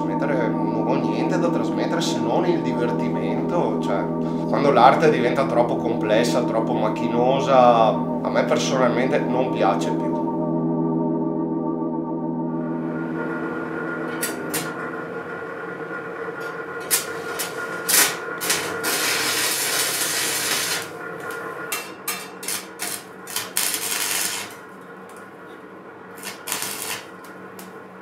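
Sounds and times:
welding arc crackling: 0:16.8 - 0:25.3, 0:26.1 - 0:27.8.

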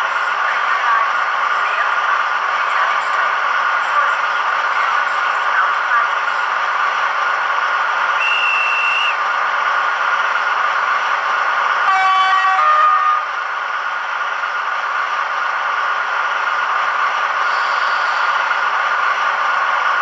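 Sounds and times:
diesel engine sound from small speaker: 0:00.0 - 0:20.0
two-tone horn: 0:11.9 - 0:13.3.

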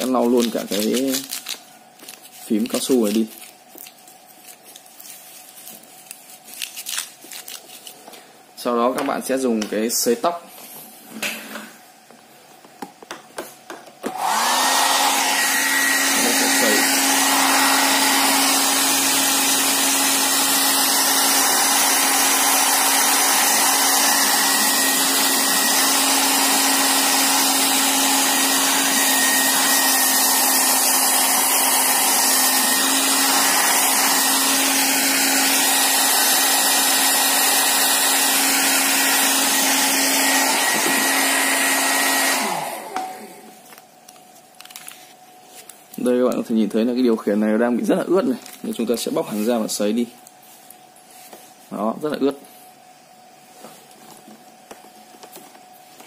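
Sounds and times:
hair dryer running: 0:14.0 - 0:43.6.

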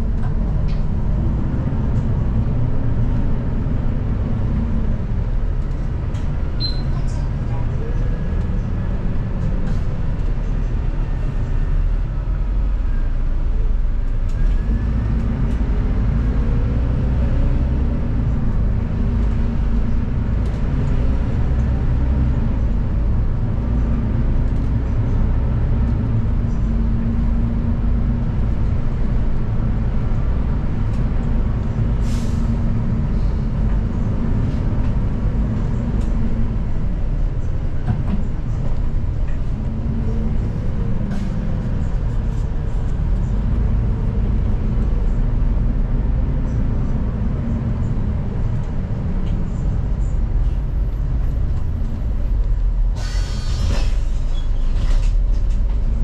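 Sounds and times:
bus engine rumble: 0:00.0 - 0:56.0
air brake hiss: 0:32.0 - 0:32.5, 0:52.9 - 0:54.3.

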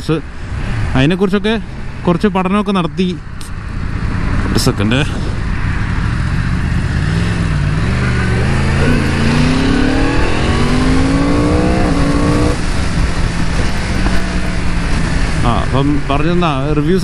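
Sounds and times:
motorcycle engine accelerating: 0:03.9 - 0:15.9.

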